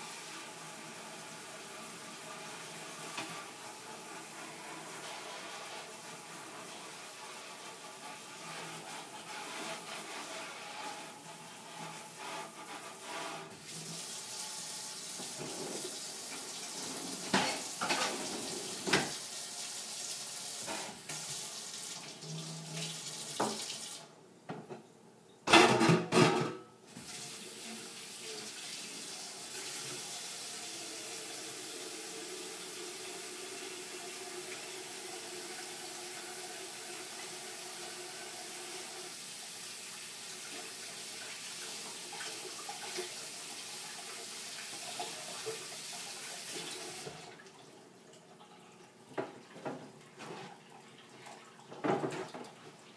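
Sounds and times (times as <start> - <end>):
kitchen faucet running: 0.0 - 24.1, 26.9 - 47.5
dishes clinking and clattering: 17.0 - 19.2, 25.5 - 26.7, 51.3 - 52.6.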